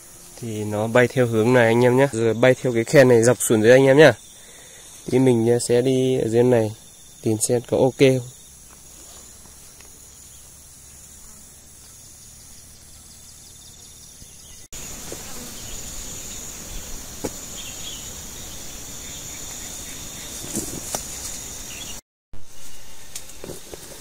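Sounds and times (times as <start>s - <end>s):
insects buzzing: 0.0s - 24.0s
crackles and snaps of brush: 20.4s - 21.4s, 23.1s - 24.0s.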